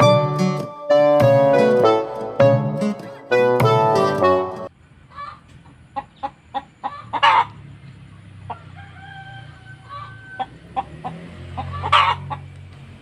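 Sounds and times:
chicken squawk: 0:05.1 - 0:07.6, 0:08.5 - 0:12.5
drawn-out chicken call: 0:05.1 - 0:07.6, 0:08.4 - 0:12.5
chickens clucking: 0:05.1 - 0:12.7.

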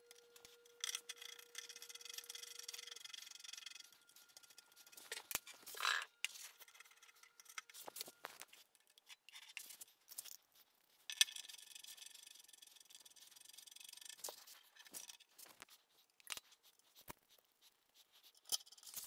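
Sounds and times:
metal bolt clicks and scrapes: 0:00.1 - 0:10.4.

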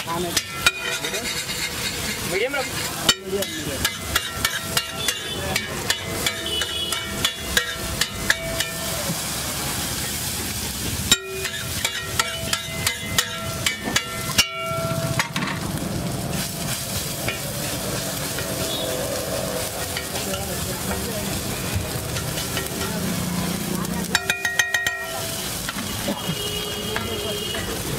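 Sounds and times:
sizzling frying: 0:00.0 - 0:27.9
metal spatulas tapping on griddle: 0:00.1 - 0:09.2, 0:11.1 - 0:15.6, 0:19.8 - 0:21.1, 0:22.0 - 0:23.1, 0:24.0 - 0:27.8.

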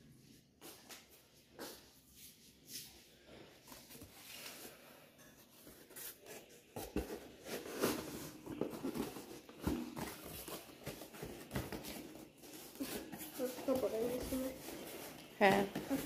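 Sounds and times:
packaging rustling and scraping: 0:03.7 - 0:16.0.

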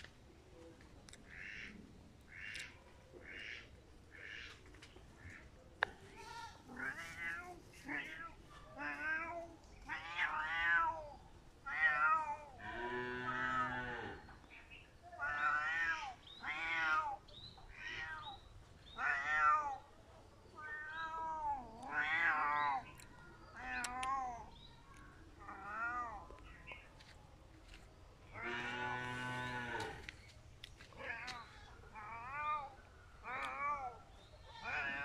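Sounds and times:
cat meowing: 0:06.7 - 0:12.5, 0:15.2 - 0:18.4, 0:19.0 - 0:19.8, 0:20.6 - 0:22.8.

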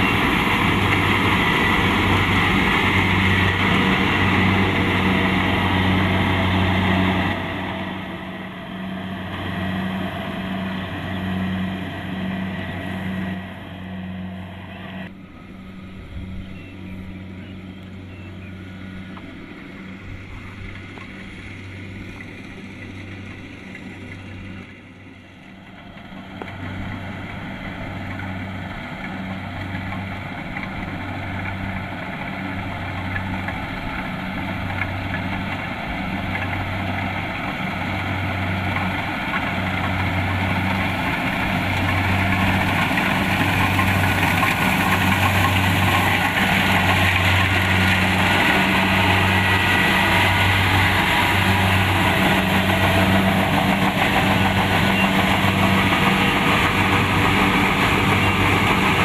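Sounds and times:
combine harvester engine throbbing: 0:00.0 - 0:59.0.

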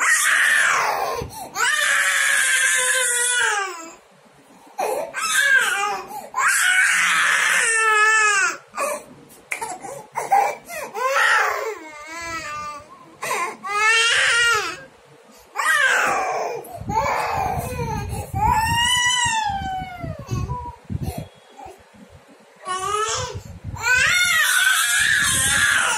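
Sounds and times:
toddler crying: 0:10.2 - 0:14.9, 0:15.6 - 0:20.8, 0:22.7 - 0:25.9.

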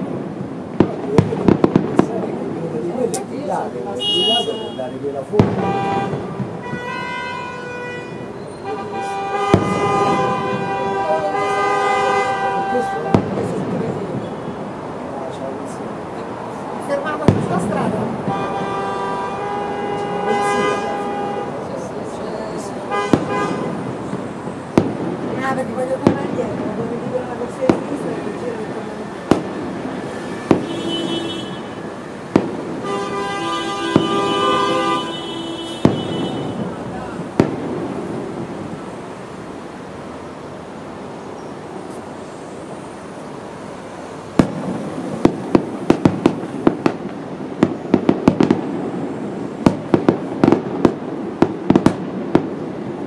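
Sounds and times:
sharp firework bang: 0:00.0 - 0:07.4, 0:08.2 - 0:14.7, 0:17.1 - 0:21.6, 0:22.9 - 0:26.8, 0:29.2 - 0:38.9, 0:44.3 - 0:53.0
long horn blasts: 0:05.6 - 0:13.3, 0:18.3 - 0:21.9, 0:22.9 - 0:23.9, 0:32.8 - 0:36.8.

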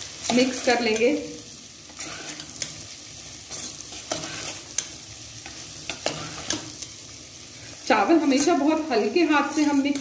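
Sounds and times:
food sizzling in pot: 0:00.0 - 0:10.0
metal spatula scraping pot: 0:01.9 - 0:02.9, 0:03.5 - 0:06.9, 0:07.6 - 0:10.0.

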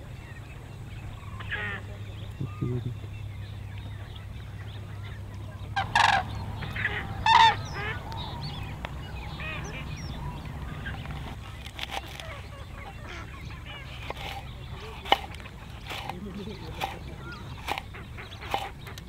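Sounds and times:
birds calling in flight: 0:00.0 - 0:19.0
knife chopping on wooden board: 0:14.0 - 0:17.0.

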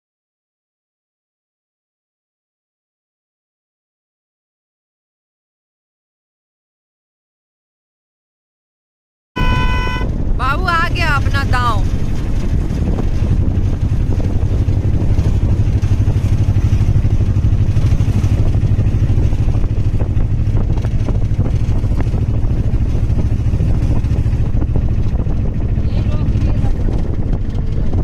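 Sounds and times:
motorcycle engine running: 0:09.4 - 0:28.0.

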